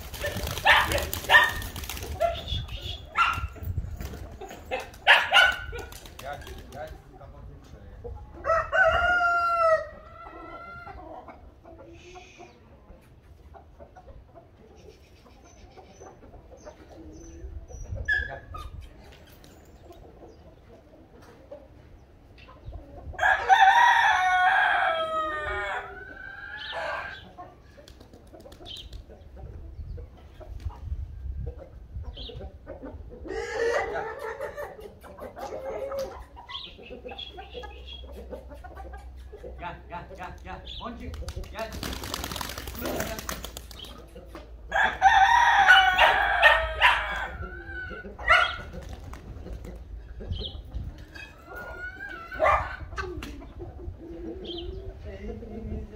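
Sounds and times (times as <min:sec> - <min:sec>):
roosters crowing: 0:08.3 - 0:11.3, 0:23.1 - 0:27.6, 0:33.2 - 0:34.8, 0:44.6 - 0:49.0, 0:51.1 - 0:53.2.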